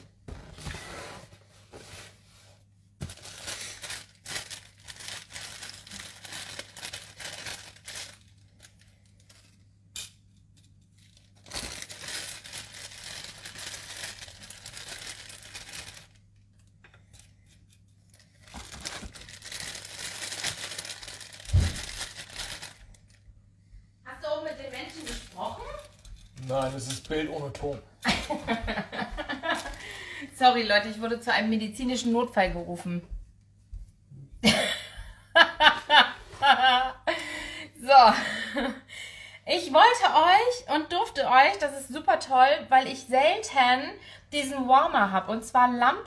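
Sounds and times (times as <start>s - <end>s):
plastic wrapping crinkling and tearing: 3.0s - 9.7s, 10.4s - 23.2s, 24.7s - 27.8s, 29.1s - 30.1s.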